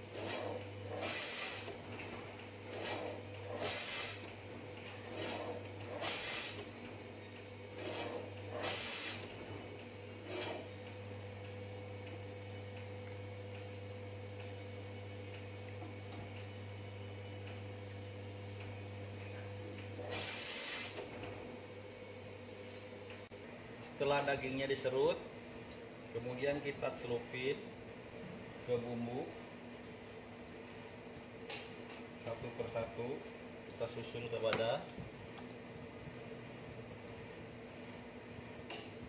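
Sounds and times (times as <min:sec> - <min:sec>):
meat slicer humming: 0:00.0 - 0:23.1.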